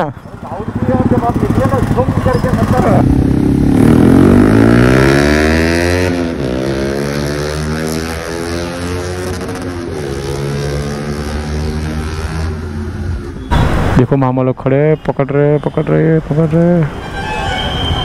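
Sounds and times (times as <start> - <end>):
motorcycle accelerating past: 0.4 - 13.3.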